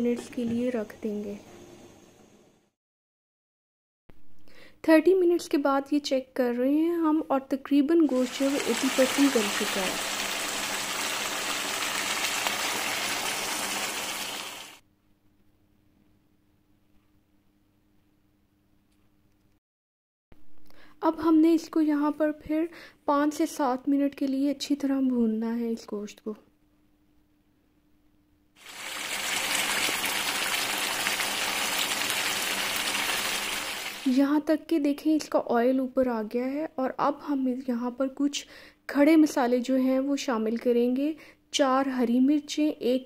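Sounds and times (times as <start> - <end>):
curry bubbling and sizzling: 8.1 - 14.8, 28.6 - 34.2.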